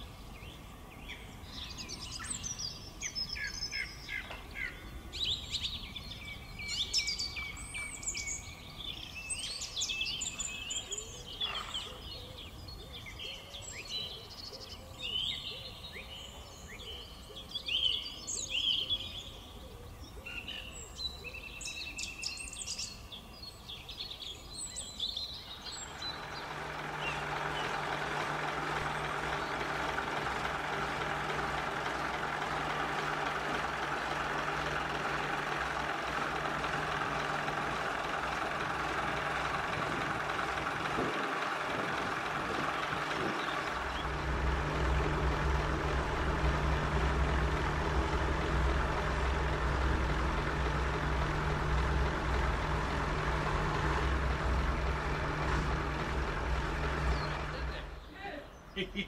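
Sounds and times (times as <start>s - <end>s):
diesel engine idling: 0.0s - 58.8s
birds singing and chirping: 0.0s - 59.0s.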